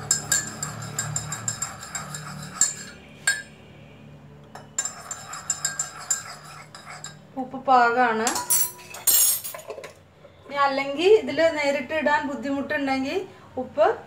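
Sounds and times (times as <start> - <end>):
spoon clinking in a ceramic mug: 0.0 - 3.6, 4.5 - 7.2, 8.2 - 9.9.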